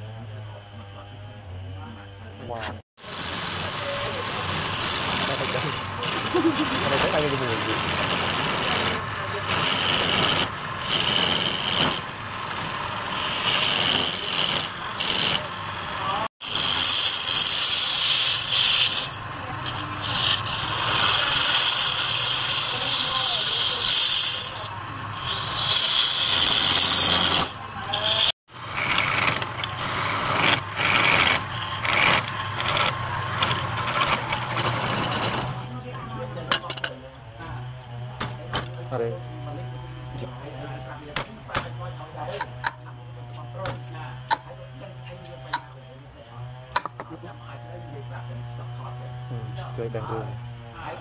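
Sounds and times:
chisel scraping wood on lathe: 2.5 - 37.0.

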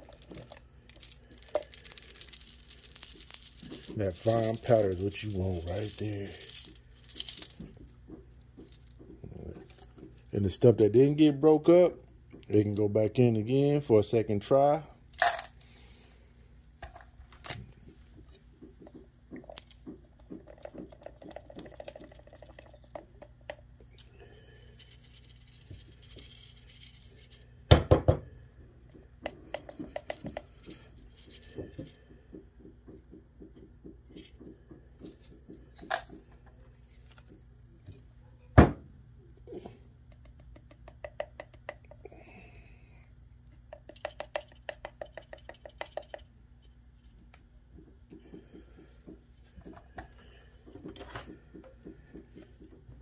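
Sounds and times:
marbles clicking in metal strainer: 0.0 - 7.7, 20.5 - 23.0.

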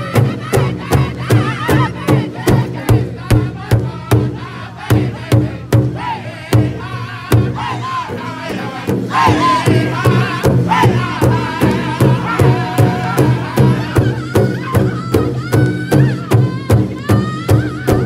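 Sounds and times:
large hide drum beating: 0.0 - 18.0
men singing in high voices: 0.0 - 18.0.

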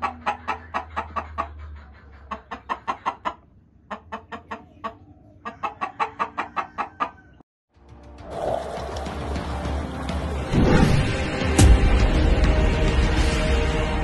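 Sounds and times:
chicken clucking: 0.0 - 7.4
music: 7.7 - 14.0.

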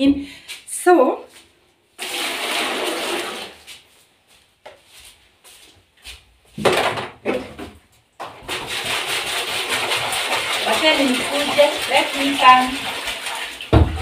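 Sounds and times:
running water: 8.2 - 14.0.

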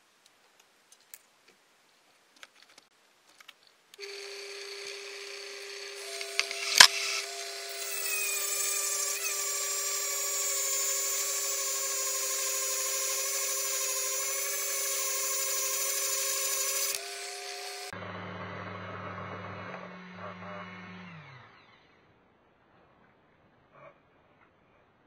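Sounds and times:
cut-off disc grinding glass: 4.0 - 17.9
lathe humming: 4.0 - 17.9.

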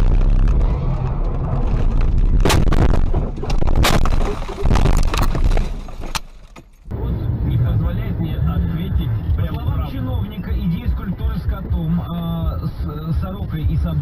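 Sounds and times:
heavy crash impacts: 0.0 - 6.8
car rumble: 0.0 - 14.0.

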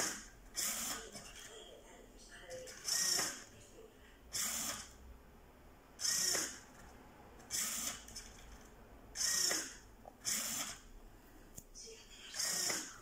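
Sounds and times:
servo mechanism whirring: 0.0 - 1.3, 2.7 - 3.4, 4.3 - 5.0, 6.0 - 6.7, 7.4 - 10.9, 12.4 - 13.0.

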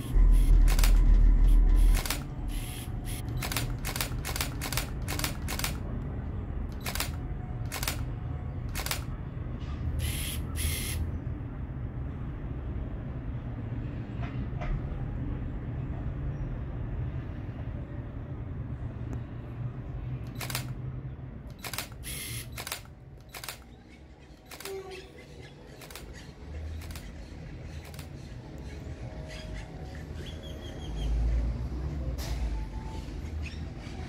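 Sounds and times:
low steady rumble: 0.0 - 9.9
camera shutter clicks: 0.4 - 1.1, 1.8 - 5.8, 6.7 - 8.0, 8.7 - 9.1, 20.3 - 20.8, 21.5 - 23.7, 24.4 - 24.8, 25.8 - 26.1, 26.8 - 27.1, 27.8 - 28.1.

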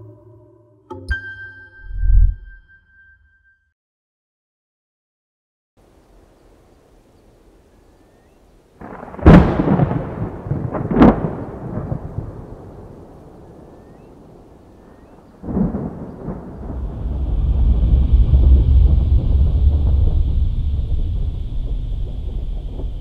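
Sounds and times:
sharp thunder clap: 8.8 - 14.4, 15.4 - 23.0
low rolling thunder rumble: 8.8 - 23.0.

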